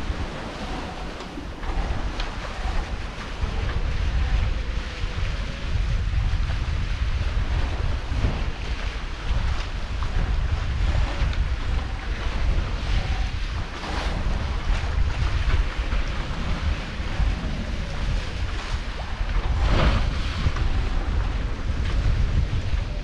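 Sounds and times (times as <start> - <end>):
waves splashing along hulls: 0.0 - 23.0
wind buffeting microphone: 0.0 - 23.0.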